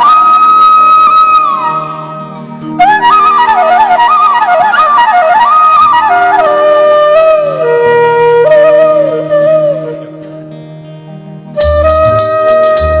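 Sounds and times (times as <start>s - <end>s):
flute melody: 0.0s - 13.0s.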